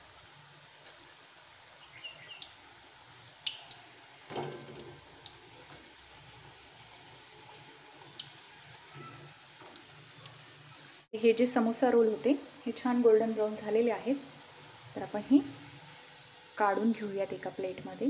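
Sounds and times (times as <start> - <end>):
oil sizzling with pops: 0.0 - 18.0.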